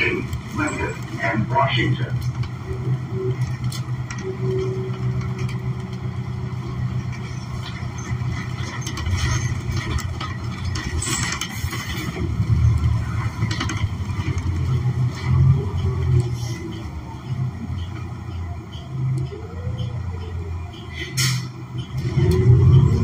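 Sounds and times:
bus engine drone: 0:00.0 - 0:23.0
brief air hiss: 0:21.2 - 0:21.5.

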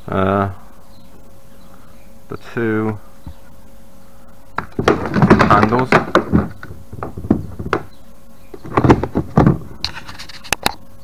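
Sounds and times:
hard plastic knocks and clunks: 0:04.6 - 0:08.0, 0:08.6 - 0:09.7.

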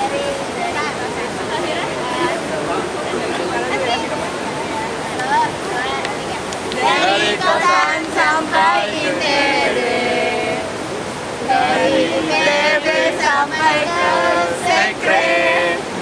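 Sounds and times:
steady rushing noise: 0:00.0 - 0:16.0
group singing and chanting a cheer: 0:06.7 - 0:10.8, 0:11.4 - 0:16.0.

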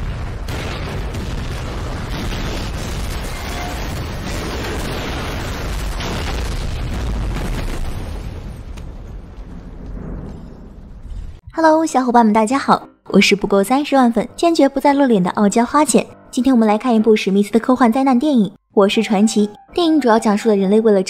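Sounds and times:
explosion roar and rumble: 0:00.0 - 0:11.4.

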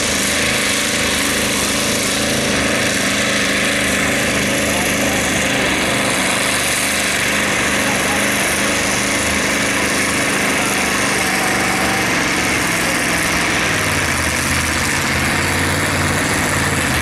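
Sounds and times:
diesel tractor engine under load: 0:00.0 - 0:17.0.

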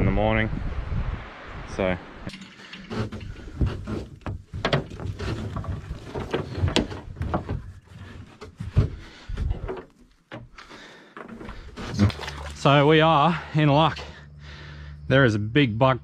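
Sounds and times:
rustling: 0:02.3 - 0:12.7
knocks and thumps on aluminium boat: 0:02.7 - 0:12.7.

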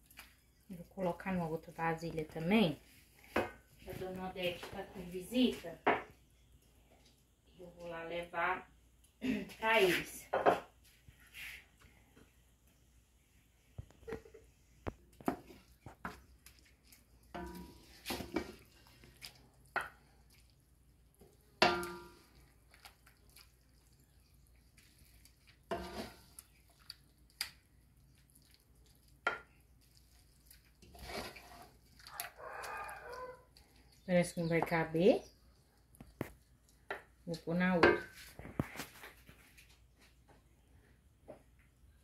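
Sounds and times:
wooden spoon scraping a pan: 0:15.2 - 0:20.0, 0:24.8 - 0:26.6, 0:30.6 - 0:32.1.

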